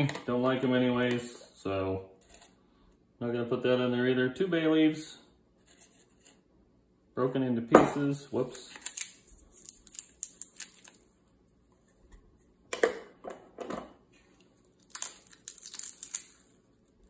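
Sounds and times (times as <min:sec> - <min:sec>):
dried leaves crackling: 0:14.8 - 0:16.9.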